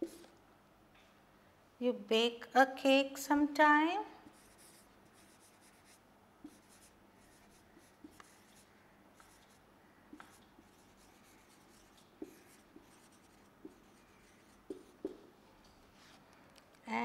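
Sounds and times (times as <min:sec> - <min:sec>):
marker scratching on whiteboard: 0:00.0 - 0:00.3, 0:04.3 - 0:15.3.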